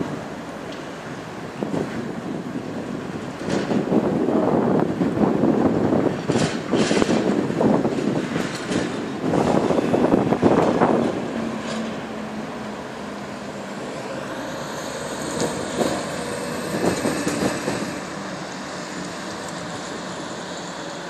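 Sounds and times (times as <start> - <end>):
background traffic: 0.0 - 21.0
truck passing with diesel hum: 0.0 - 21.0
car rushing past: 10.4 - 21.0.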